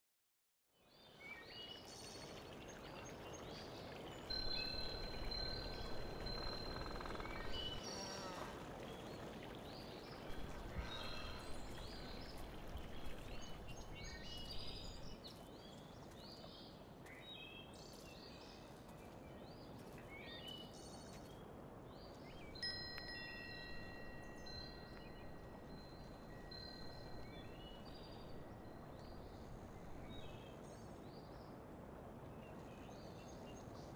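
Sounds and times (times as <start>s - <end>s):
faint steady hiss: 0.8s - 33.9s
birds chirping: 3.1s - 16.6s, 22.1s - 30.6s
long ringing chime tones: 4.3s - 8.2s, 22.6s - 30.0s.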